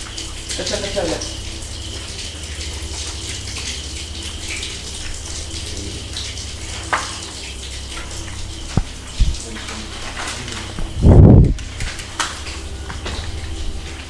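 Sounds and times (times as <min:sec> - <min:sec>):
steady low hum: 0:00.0 - 0:14.0
water splashing and dripping: 0:00.0 - 0:14.0.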